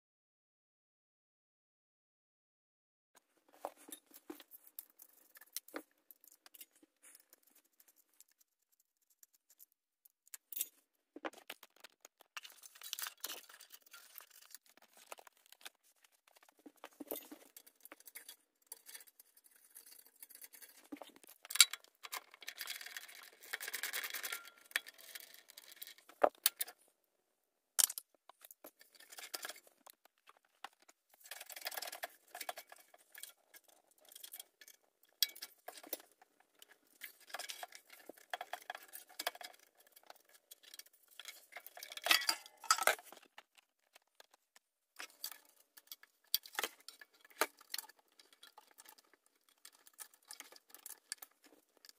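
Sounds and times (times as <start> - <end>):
hand tools clicking and tapping: 37.2 - 47.9.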